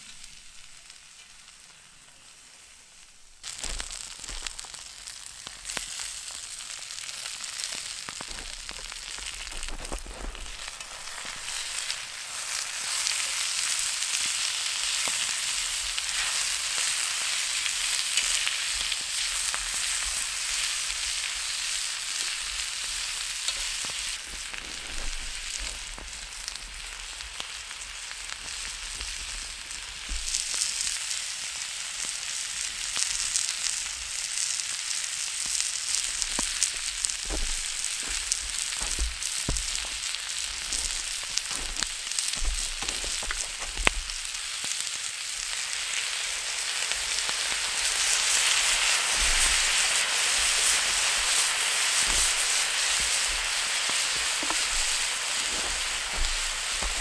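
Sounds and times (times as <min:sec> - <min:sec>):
meat sizzling in a pan: 0:00.0 - 0:57.0
pops and crackles: 0:03.4 - 0:12.0, 0:23.0 - 0:26.5, 0:28.4 - 0:30.9, 0:34.7 - 0:44.8, 0:47.3 - 0:57.0.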